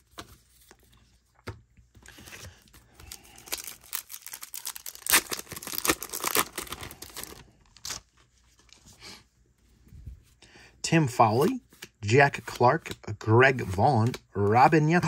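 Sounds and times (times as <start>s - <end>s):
plastic wrapper tearing: 3.2s - 8.0s.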